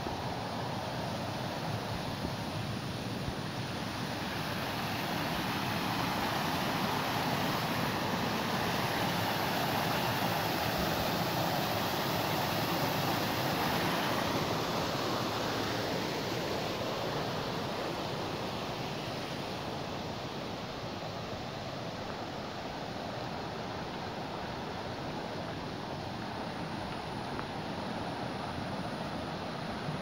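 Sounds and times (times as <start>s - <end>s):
water rushing over rapids: 0.0s - 30.0s.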